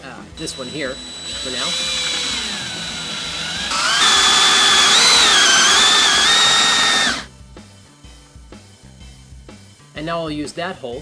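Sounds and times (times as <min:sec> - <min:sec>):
cordless drill boring through metal: 0:00.4 - 0:07.3.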